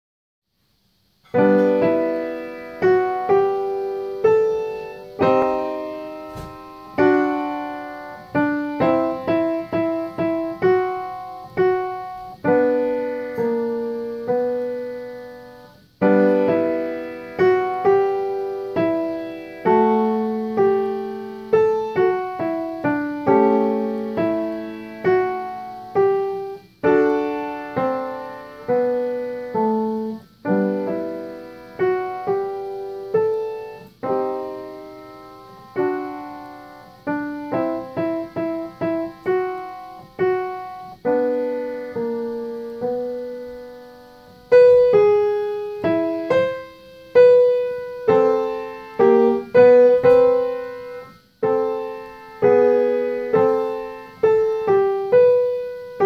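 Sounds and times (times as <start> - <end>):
upright piano playing: 1.0 - 56.0.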